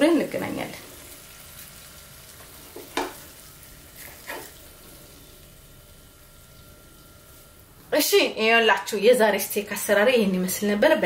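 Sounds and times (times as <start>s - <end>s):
steak sizzling in a pan: 0.0s - 8.0s.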